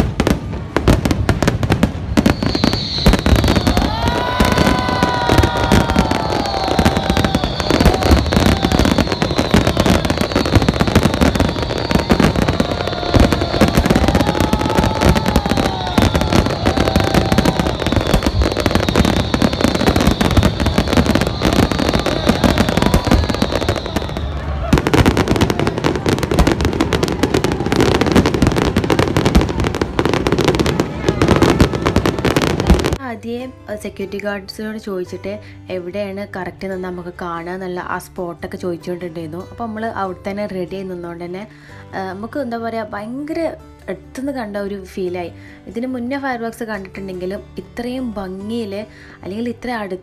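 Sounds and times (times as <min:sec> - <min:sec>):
fireworks bangs and crackling: 0:00.0 - 0:33.0
high whistle: 0:02.2 - 0:24.8.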